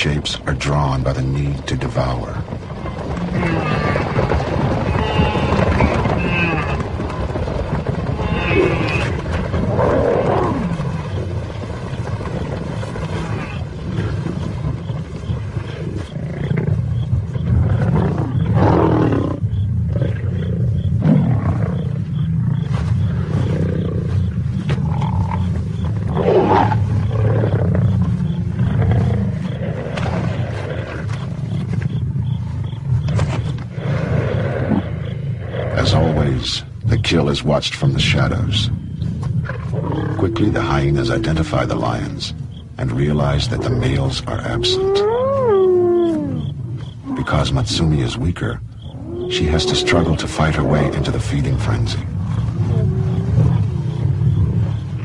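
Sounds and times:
lions growling: 0.7s - 55.0s
loud lion calls: 48.9s - 51.9s.

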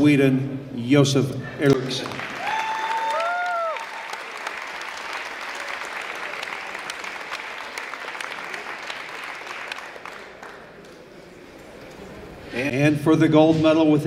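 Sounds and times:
audience applauding: 2.0s - 11.0s.

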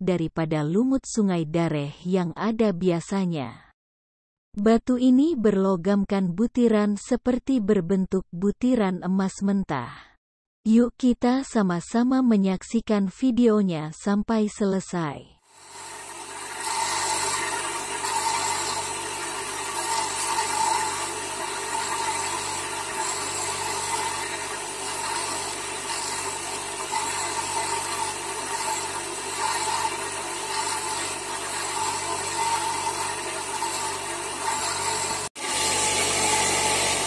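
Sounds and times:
grinder motor hum: 15.5s - 37.0s
stone grinding rasp: 15.6s - 37.0s.

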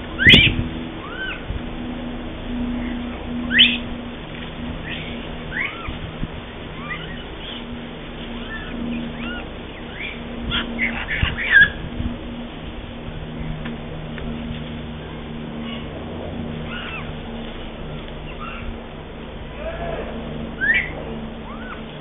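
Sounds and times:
monkey coo calls: 0.2s - 1.4s, 6.8s - 7.7s, 8.4s - 11.8s, 16.6s - 17.2s, 20.6s - 22.0s.

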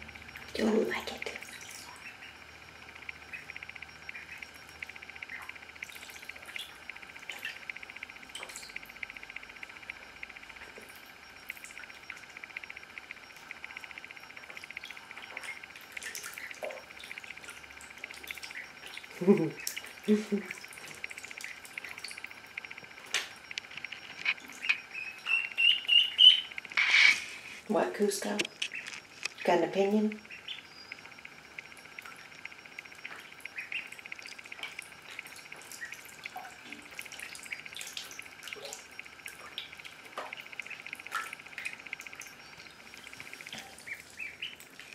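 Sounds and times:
ducklings trilling and peeping: 0.7s - 3.5s, 4.1s - 7.6s, 14.5s - 22.2s, 24.4s - 27.2s, 33.1s - 41.2s, 42.5s - 44.9s.

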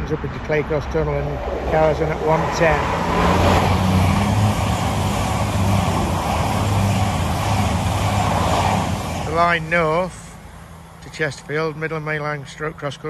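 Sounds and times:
diesel engine hum: 0.0s - 13.0s
train passing at speed: 0.7s - 11.0s.

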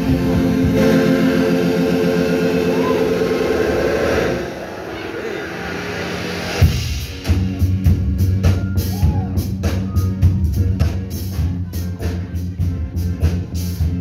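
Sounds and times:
steady drum beat: 0.0s - 3.4s, 6.6s - 14.0s
rock band playing: 0.0s - 3.9s, 5.8s - 14.0s
low repeating bass line: 0.0s - 4.2s, 7.2s - 14.0s.

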